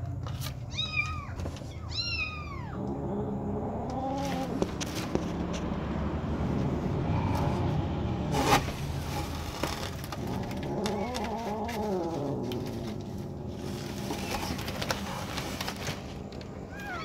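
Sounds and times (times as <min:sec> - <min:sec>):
kitten crying: 0:00.7 - 0:02.9, 0:16.7 - 0:17.0
boards and debris rustling: 0:08.3 - 0:16.8.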